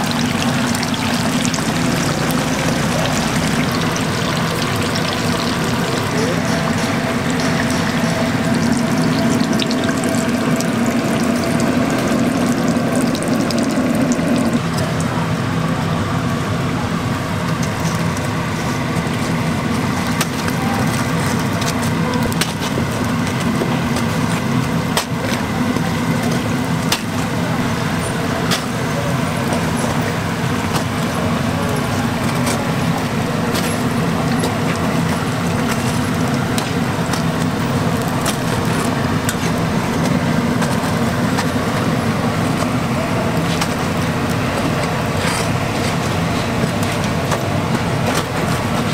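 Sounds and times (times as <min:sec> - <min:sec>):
food sizzling in deep-fryer oil: 0:00.0 - 0:15.0
low hum: 0:00.0 - 0:23.7.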